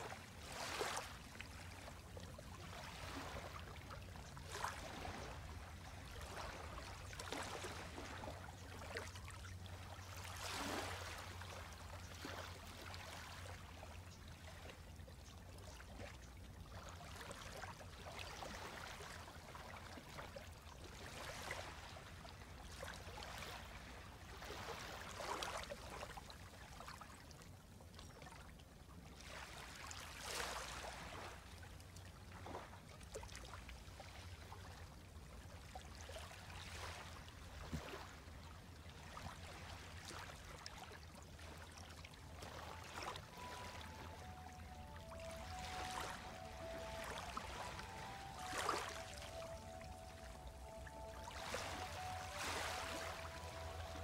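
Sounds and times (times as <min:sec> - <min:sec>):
waves lapping on pebbly shore: 0:00.0 - 0:01.8, 0:10.0 - 0:11.5, 0:23.0 - 0:25.6, 0:29.2 - 0:31.4, 0:39.0 - 0:54.0.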